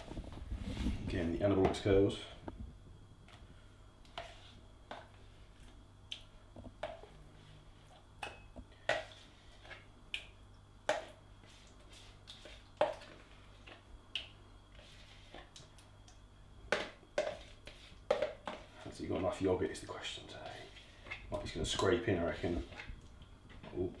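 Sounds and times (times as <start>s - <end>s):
spoon scooping yogurt: 16.7s - 19.3s.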